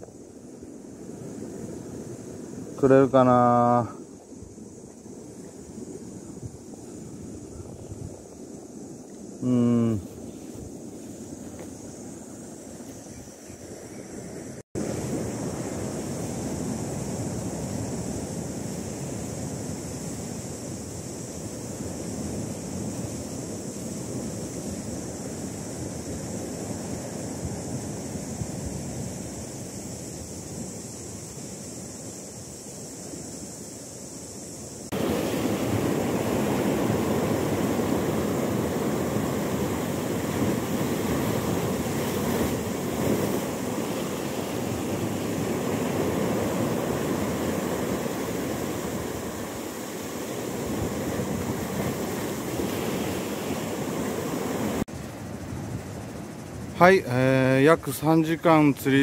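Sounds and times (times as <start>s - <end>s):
wind rumbling on microphone: 0.0s - 57.1s
sea noise: 0.0s - 59.0s
surf breaking over rocks: 34.9s - 54.9s.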